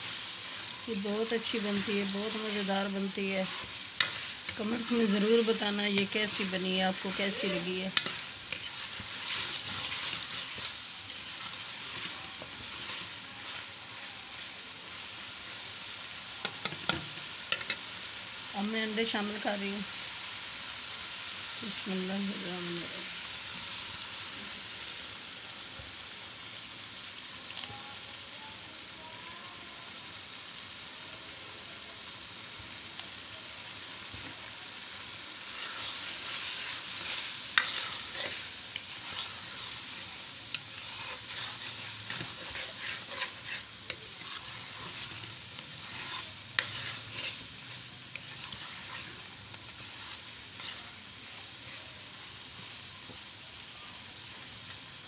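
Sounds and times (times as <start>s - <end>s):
metal spoon scraping a pan: 0.0s - 14.6s, 16.4s - 17.9s, 35.4s - 51.9s
eggs sizzling in a pan: 0.0s - 55.0s.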